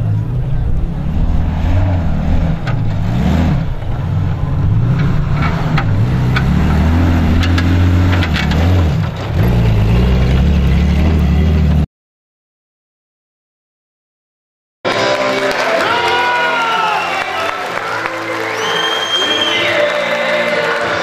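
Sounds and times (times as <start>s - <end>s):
engine revving under load: 0.0s - 11.9s.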